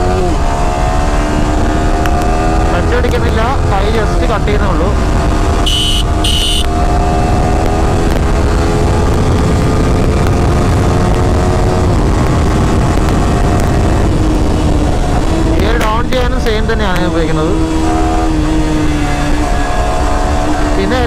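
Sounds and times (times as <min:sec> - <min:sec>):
motorcycle engine cruising: 0:00.0 - 0:21.0
short high beeps: 0:05.7 - 0:06.7
wind rushing on microphone: 0:06.6 - 0:21.0.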